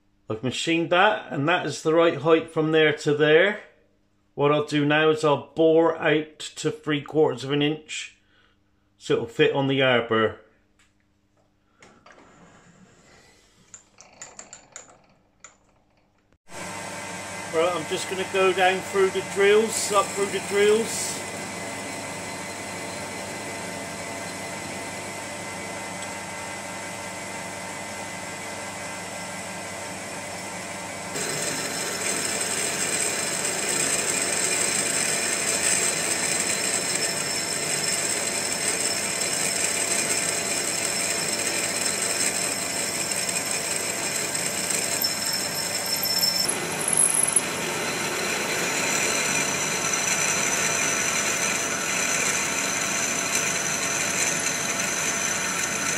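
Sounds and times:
lathe machine hum: 16.5s - 55.9s
drill cutting high whine: 16.6s - 27.6s, 31.1s - 55.9s.

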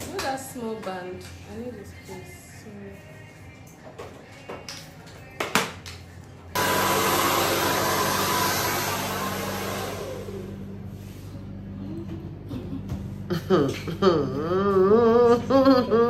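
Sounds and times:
blow dryer running: 6.6s - 11.4s.

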